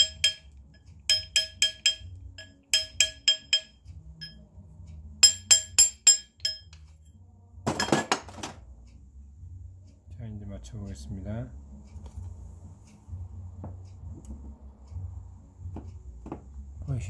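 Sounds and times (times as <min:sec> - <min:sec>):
hammer tapping metal ring: 0:00.0 - 0:04.4, 0:05.2 - 0:07.0.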